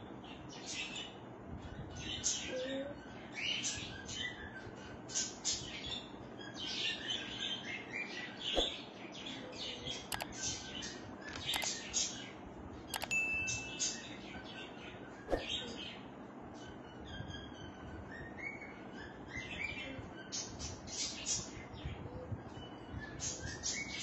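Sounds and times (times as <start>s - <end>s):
birds chirping: 0.0s - 24.0s
mouse clicks: 10.1s - 10.4s, 11.3s - 11.9s, 12.9s - 14.0s
short ding: 13.0s - 14.0s.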